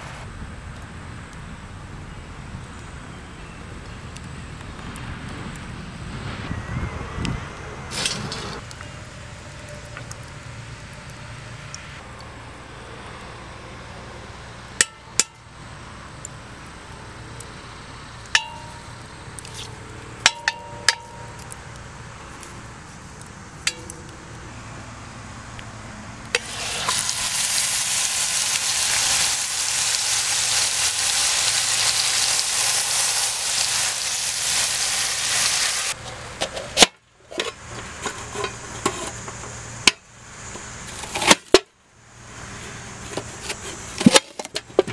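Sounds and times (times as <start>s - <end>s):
metal clinks on a pot: 18.4s - 18.9s, 20.2s - 21.4s
meat sizzling in hot fat: 26.3s - 36.0s.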